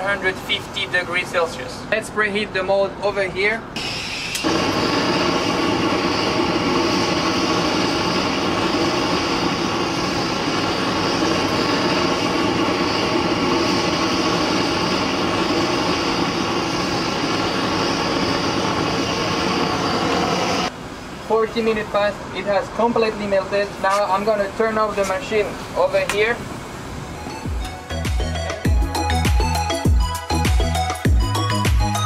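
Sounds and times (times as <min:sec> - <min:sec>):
gas torch flame roar: 0:03.8 - 0:20.8.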